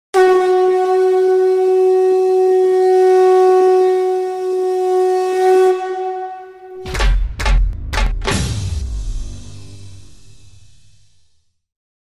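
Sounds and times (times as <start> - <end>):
wind instrument long note: 0.1 - 6.8.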